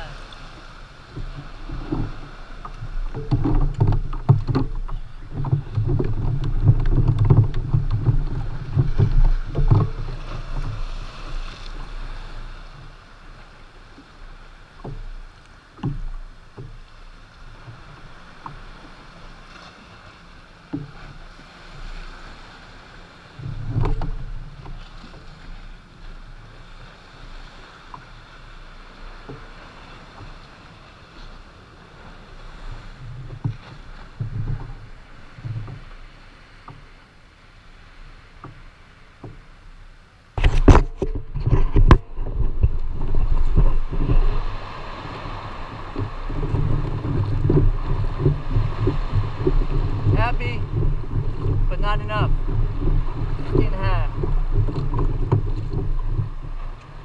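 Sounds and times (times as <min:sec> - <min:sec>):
water slapping against kayak hull: 0:00.0 - 0:57.0
knocks on kayak: 0:01.1 - 0:10.9, 0:15.8 - 0:16.8, 0:23.4 - 0:25.2, 0:40.4 - 0:56.7.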